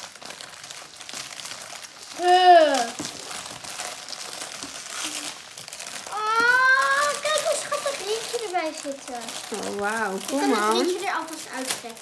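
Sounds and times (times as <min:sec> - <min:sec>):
plastic wrapping crinkling: 0:00.0 - 0:12.0
child saying ooh: 0:02.2 - 0:03.0, 0:06.1 - 0:07.8.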